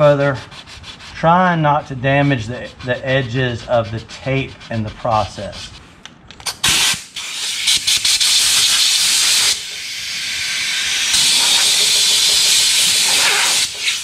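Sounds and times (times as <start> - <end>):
air blow gun hissing: 6.6 - 14.0.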